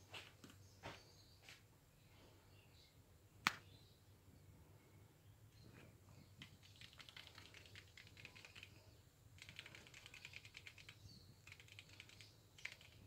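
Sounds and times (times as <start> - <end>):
faint rapid clicks: 6.4 - 13.0.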